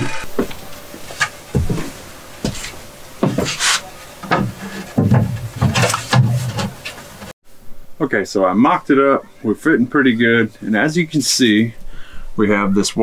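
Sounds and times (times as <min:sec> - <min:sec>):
wood knocking and scraping on wood: 0:00.0 - 0:07.3
heavy wooden thuds: 0:04.2 - 0:07.3.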